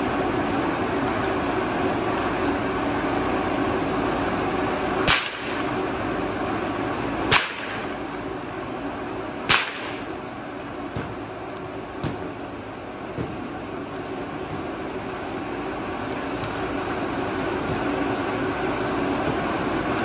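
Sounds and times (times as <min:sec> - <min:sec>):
electric blower fans droning: 0:00.0 - 0:20.0
whip cracks: 0:05.0 - 0:05.7, 0:07.3 - 0:07.9, 0:09.5 - 0:10.1.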